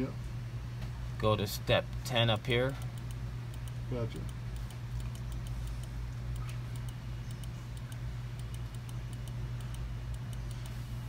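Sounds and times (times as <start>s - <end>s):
low machine hum: 0.0s - 11.0s
rapid high-pitched ticking: 2.3s - 10.8s.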